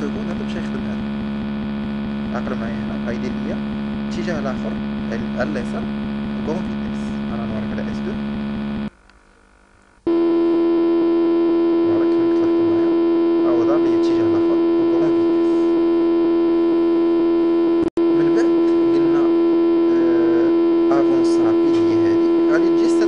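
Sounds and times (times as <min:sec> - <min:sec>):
electric motor hum: 0:00.0 - 0:23.0.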